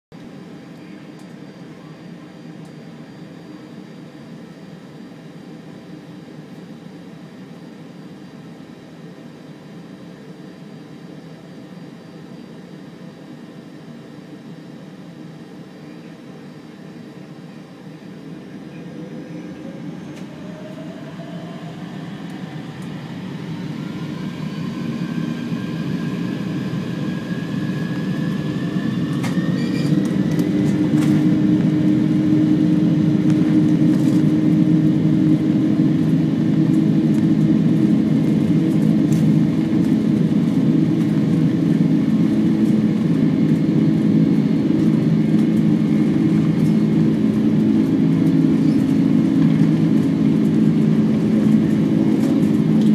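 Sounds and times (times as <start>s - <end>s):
jet engines whining: 0.2s - 52.9s
jet cabin rumble: 15.6s - 52.9s.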